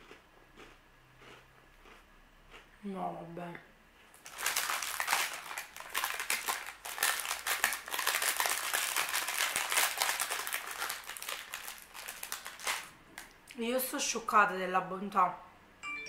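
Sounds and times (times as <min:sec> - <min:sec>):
plastic wrapper crinkling: 0:04.1 - 0:13.4.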